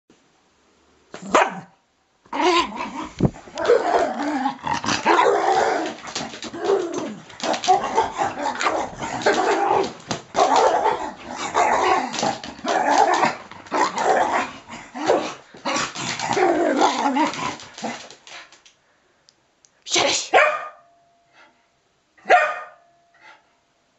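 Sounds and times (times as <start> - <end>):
dog growling and barking: 1.2 - 1.7, 2.3 - 18.1.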